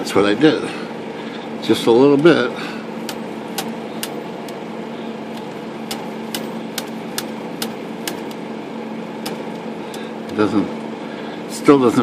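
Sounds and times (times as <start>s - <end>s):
steady low hum: 0.0s - 12.0s
typewriter carriage ticking: 5.4s - 8.4s.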